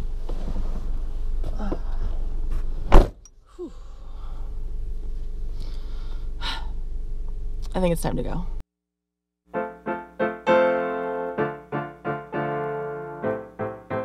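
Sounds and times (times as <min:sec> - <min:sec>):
car door slamming: 0:02.9 - 0:03.2.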